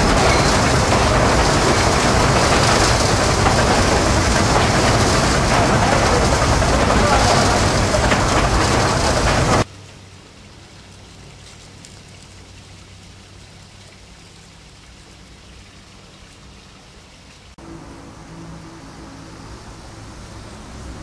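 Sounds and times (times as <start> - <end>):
steady tones: 0.0 - 9.6
steam locomotive cab rushing: 0.0 - 9.7, 17.6 - 21.0
low hum: 17.6 - 21.0.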